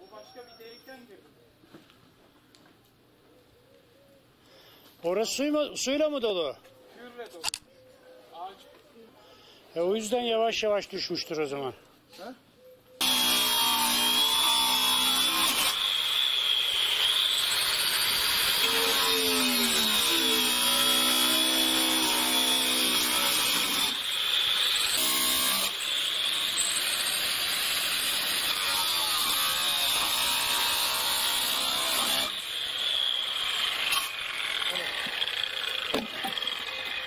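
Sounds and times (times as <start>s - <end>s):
angle grinder cutting metal: 13.0s - 37.0s.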